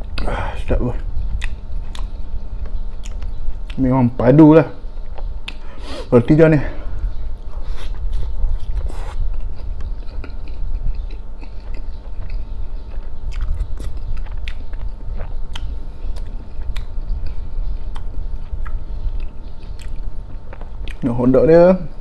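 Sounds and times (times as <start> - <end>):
steady low rumble: 0.0 - 22.0
wet mouth clicks: 1.3 - 3.8, 5.2 - 5.7, 13.0 - 21.0
biting and chewing bread: 7.3 - 21.0.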